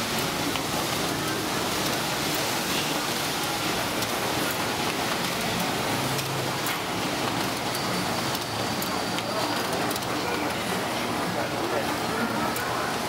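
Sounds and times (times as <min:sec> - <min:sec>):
photocopier running: 0:00.0 - 0:13.0
pages feeding clicks: 0:03.4 - 0:10.6.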